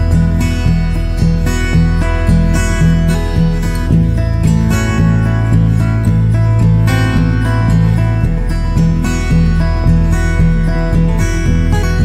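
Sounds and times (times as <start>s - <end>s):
background music with bass line: 0.0s - 12.0s.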